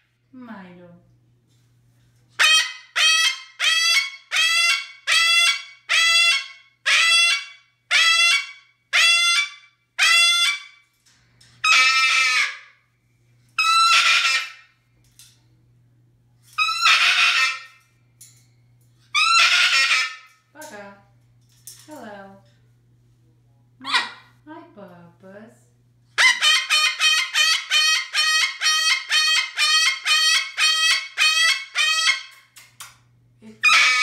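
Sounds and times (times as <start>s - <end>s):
cockatoo screaming: 11.6s - 12.7s, 13.6s - 14.6s, 16.6s - 17.8s, 19.2s - 20.3s, 26.2s - 32.3s, 33.6s - 34.0s.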